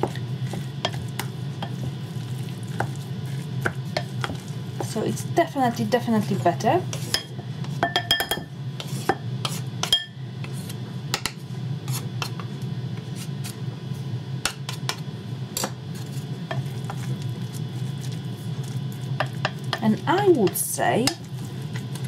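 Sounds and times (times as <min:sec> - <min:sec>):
stirring sticky mixture in bowl: 0:00.0 - 0:05.2, 0:16.0 - 0:22.0
steady low hum: 0:00.0 - 0:22.0
utensils tapping glass bowl: 0:07.1 - 0:08.5.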